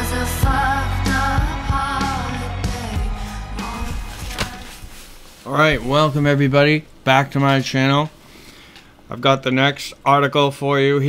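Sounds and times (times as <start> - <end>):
bass line: 0.0 - 4.4
song with wavering vocals: 0.0 - 5.1.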